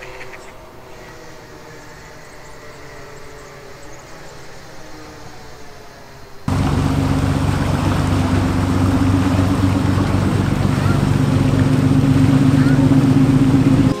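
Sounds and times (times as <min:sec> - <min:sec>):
boat engine running steadily: 0:06.5 - 0:14.0
water rushing: 0:06.5 - 0:14.0.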